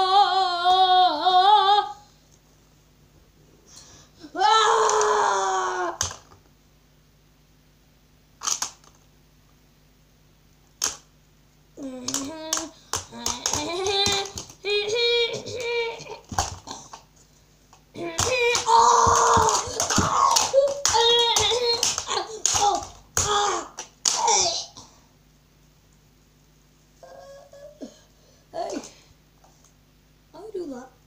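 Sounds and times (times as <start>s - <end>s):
plastic action figures clicking: 8.4s - 9.0s, 18.2s - 24.2s
boy making vocal sound effects: 11.8s - 16.9s, 18.0s - 24.8s.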